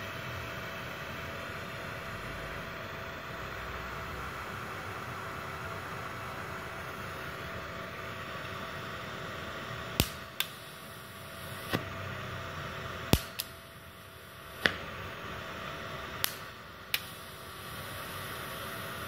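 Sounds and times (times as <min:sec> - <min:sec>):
steady hiss: 0:08.2 - 0:19.0
welding arc snaps: 0:09.9 - 0:12.0, 0:12.7 - 0:19.0.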